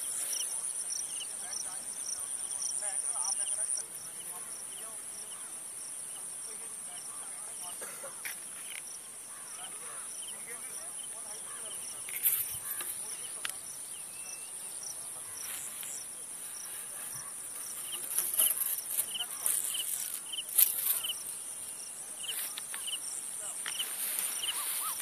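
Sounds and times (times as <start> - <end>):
insect chirps: 0.0 - 25.0
insect high-pitched trill: 8.6 - 25.0
rustling: 15.2 - 25.0.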